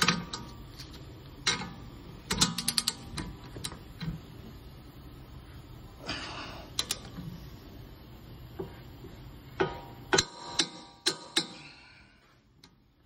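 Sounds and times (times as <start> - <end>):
socket wrench clicking on metal: 2.3 - 3.8, 6.8 - 7.1.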